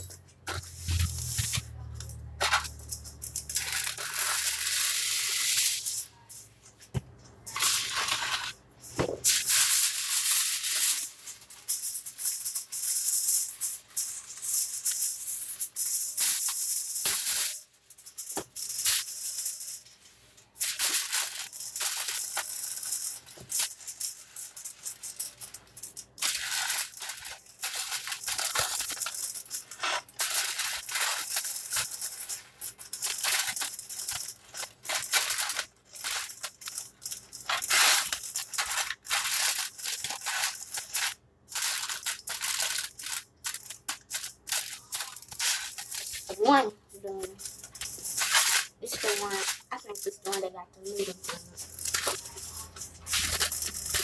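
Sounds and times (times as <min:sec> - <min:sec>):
plastic bag crinkling: 0:47.1 - 0:54.0.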